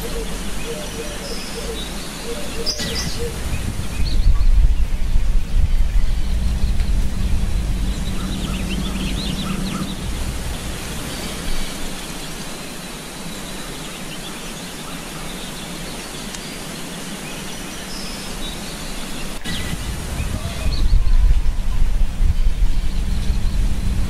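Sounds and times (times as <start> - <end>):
noisy outdoor background: 0.0 - 24.0
low rumble: 2.4 - 12.2, 19.4 - 24.0.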